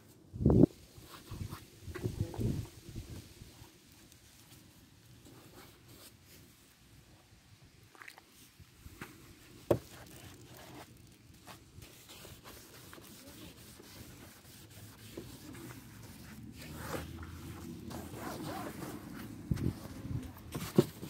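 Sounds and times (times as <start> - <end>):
faint rubbing and scraping: 9.0 - 21.0.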